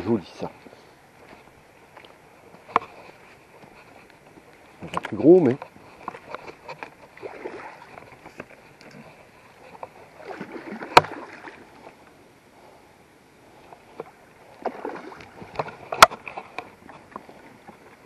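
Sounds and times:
fish thrashing in water: 0:06.1 - 0:11.8, 0:14.0 - 0:17.8.

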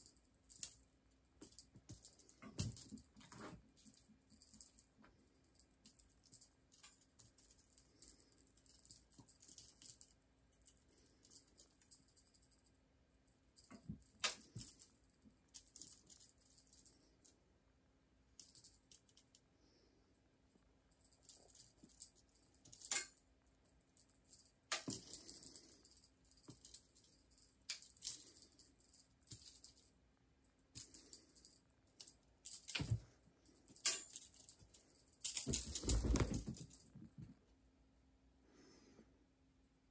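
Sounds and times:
cat toy jingling: 0:33.7 - 0:37.0.

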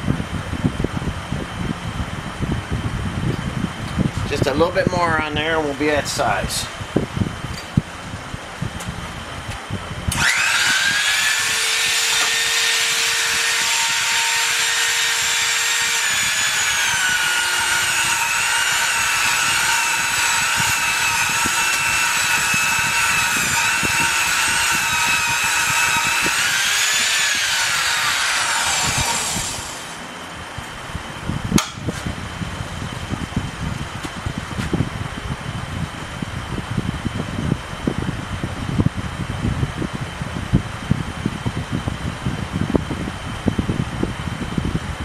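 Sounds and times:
grinder motor whine: 0:10.1 - 0:30.4.

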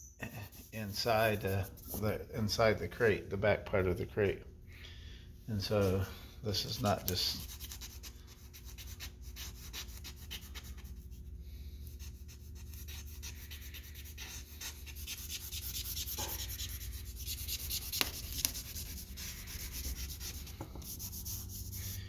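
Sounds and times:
charcoal scratching on paper: 0:06.6 - 0:22.0.

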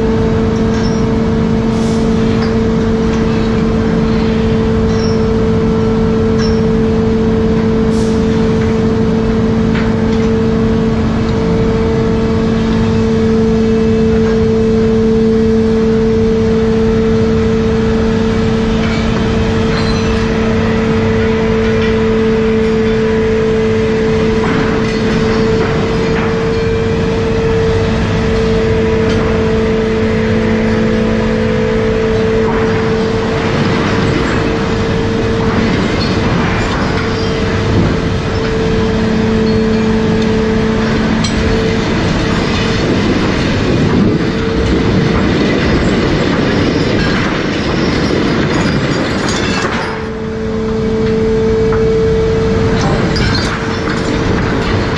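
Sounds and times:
deck machinery humming: 0:00.0 - 0:54.9
metal clanks: 0:32.0 - 0:50.4, 0:51.0 - 0:54.9.

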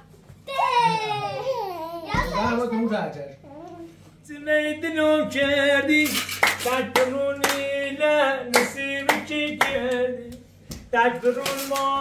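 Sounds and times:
hand claps: 0:06.0 - 0:07.7, 0:08.5 - 0:12.0.

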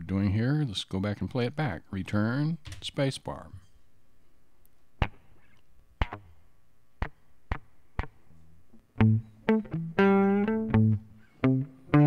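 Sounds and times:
metronome clicks: 0:05.0 - 0:06.3
picked guitar notes and chords: 0:05.0 - 0:12.0.

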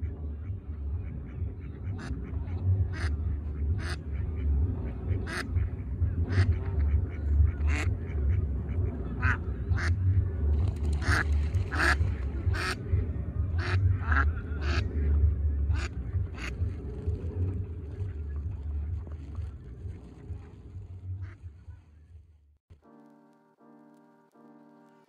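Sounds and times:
steady low rumble: 0:00.0 - 0:22.6
mallards calling: 0:01.7 - 0:04.4, 0:05.0 - 0:10.0, 0:10.9 - 0:12.9, 0:13.5 - 0:14.9, 0:15.8 - 0:16.7.

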